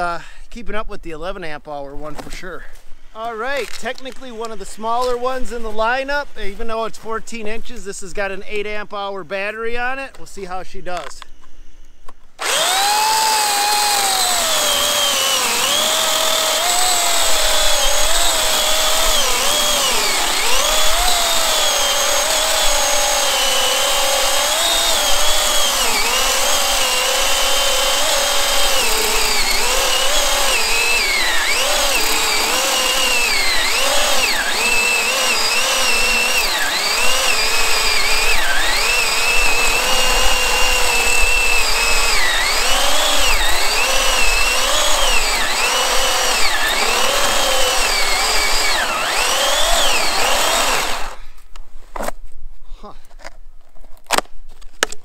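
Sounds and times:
electric chainsaw cutting log: 12.4s - 51.3s.

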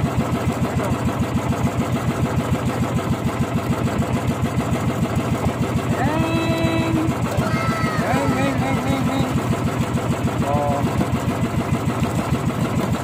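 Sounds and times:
small boat engine running: 0.0s - 13.0s
drawn-out voice: 6.0s - 9.5s.

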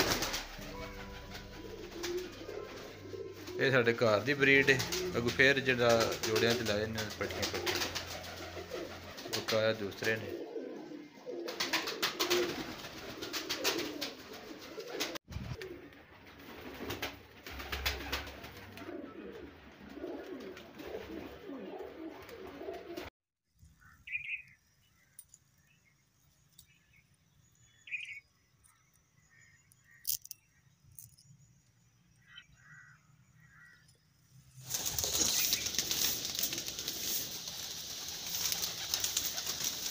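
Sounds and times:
wings flapping: 0.0s - 10.4s, 11.3s - 23.1s, 34.6s - 39.9s
pigeons cooing: 0.0s - 23.1s, 34.7s - 39.9s.

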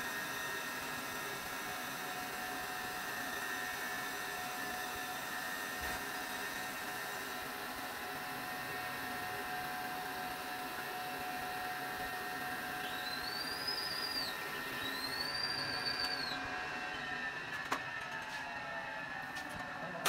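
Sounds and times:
grinding machine whine: 0.0s - 20.0s
high whistling tones: 12.8s - 17.3s.

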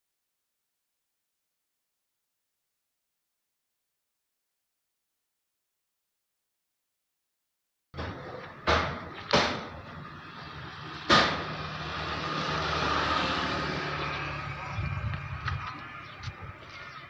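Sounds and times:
sharp knocks: 8.0s - 9.8s, 11.1s - 11.6s.

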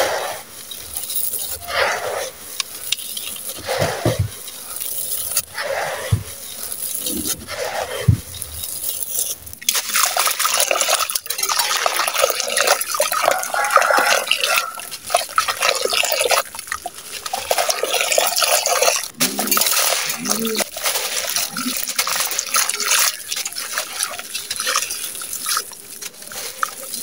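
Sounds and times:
soft thuds: 6.1s - 6.4s
grains trickling: 8.4s - 27.0s
block crunching and crackling: 12.8s - 27.0s.

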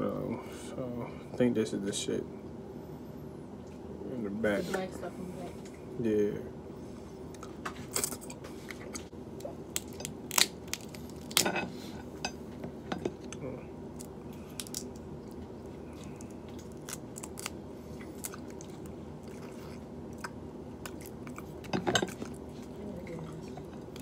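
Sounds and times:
steady low hum: 0.0s - 24.0s
shells cracking and crunching: 9.4s - 11.5s, 13.3s - 15.4s, 16.0s - 19.0s
chewing: 13.0s - 24.0s.

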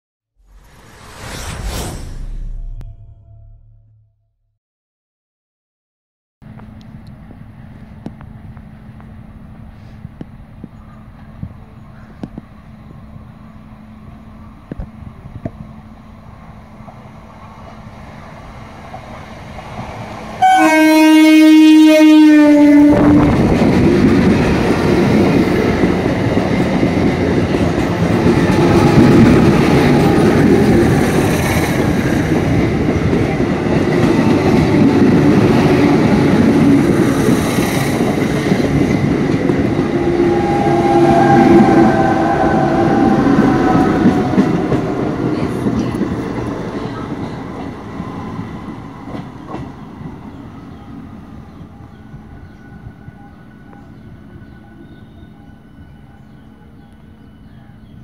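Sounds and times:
train rumbling past: 0.4s - 4.1s, 6.5s - 58.0s
steady whine: 0.4s - 4.2s
train horn: 20.4s - 23.4s, 39.8s - 45.1s.

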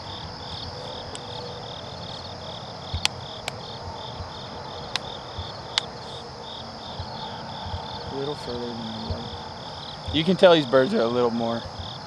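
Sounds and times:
insects chirping: 0.0s - 12.0s
outdoor hiss: 0.0s - 12.0s
sharp clicks: 2.9s - 3.6s, 4.9s - 6.0s.

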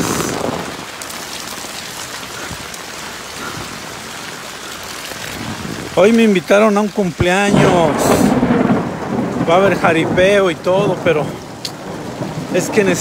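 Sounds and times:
rain on wet pavement: 0.0s - 13.0s
rain pattering on umbrella: 0.0s - 13.0s.

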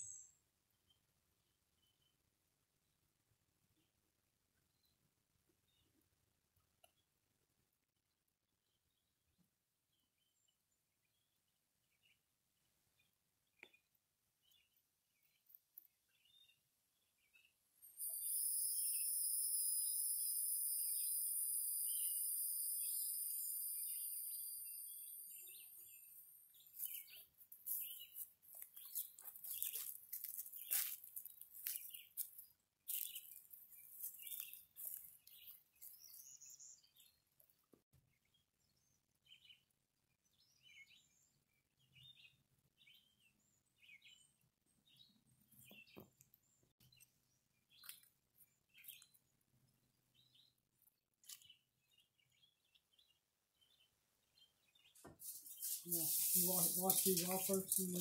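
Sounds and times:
bird chirps: 0.0s - 1.0s, 13.0s - 37.2s.

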